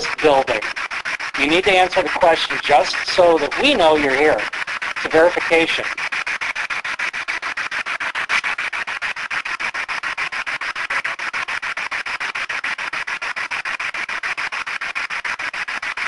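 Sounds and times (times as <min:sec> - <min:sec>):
pulses of radio static: 0:00.0 - 0:06.1.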